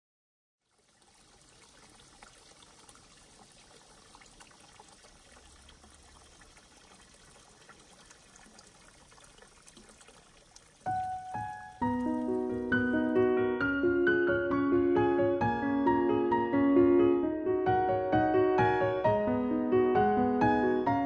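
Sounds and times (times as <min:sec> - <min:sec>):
water trickling into stone pool: 0:00.6 - 0:12.9.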